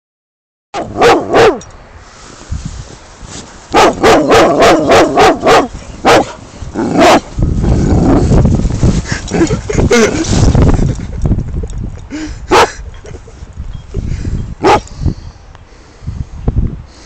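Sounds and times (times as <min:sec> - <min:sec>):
dog barking: 0:00.8 - 0:01.6, 0:03.7 - 0:07.3, 0:12.5 - 0:12.8, 0:14.6 - 0:14.8.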